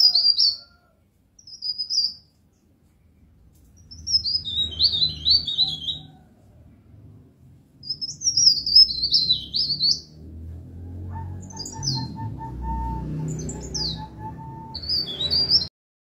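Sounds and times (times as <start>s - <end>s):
small songbird twittering: 1.4s - 2.3s, 3.8s - 6.1s, 7.8s - 10.2s, 11.4s - 15.7s.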